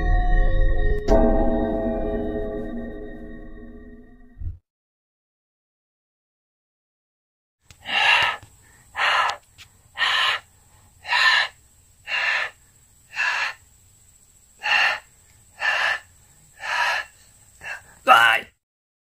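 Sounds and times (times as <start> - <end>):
person breathing heavily: 7.8 - 13.6, 14.6 - 18.1.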